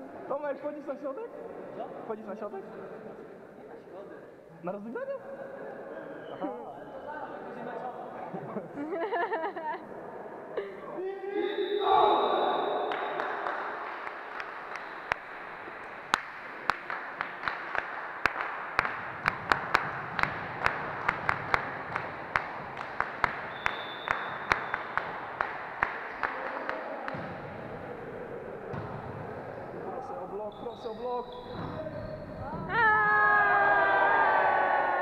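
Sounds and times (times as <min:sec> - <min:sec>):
crowd noise hum: 0:05.3 - 0:35.0
hand clapping: 0:12.9 - 0:27.4.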